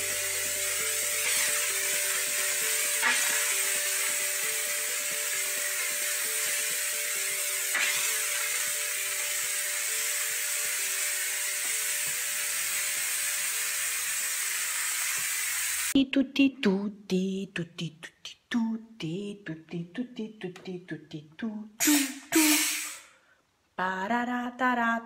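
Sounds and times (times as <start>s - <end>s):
steam cleaner hissing: 0.0s - 16.0s, 21.8s - 23.1s.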